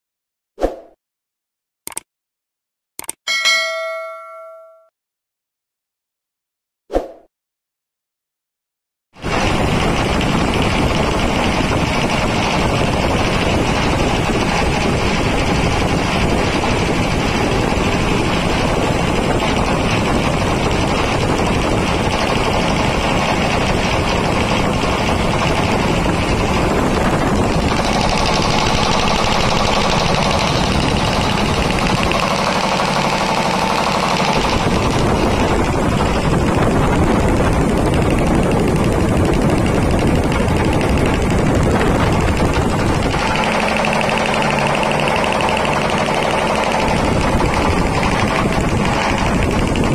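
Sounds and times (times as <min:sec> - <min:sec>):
air compressor clattering: 0:09.2 - 0:49.9.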